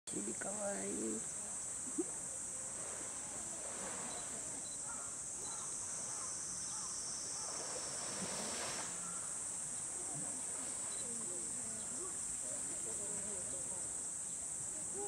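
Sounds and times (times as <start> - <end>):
cicadas chorus: 0.1 - 15.0
water splashing: 1.8 - 13.4.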